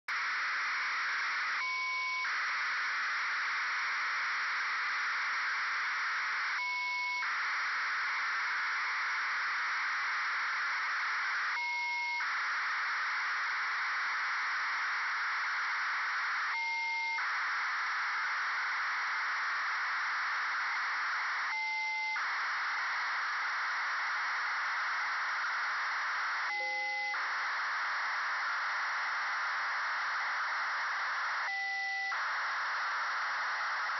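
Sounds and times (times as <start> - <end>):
hiss-like data signal: 16.3 - 18.6, 24.6 - 33.9.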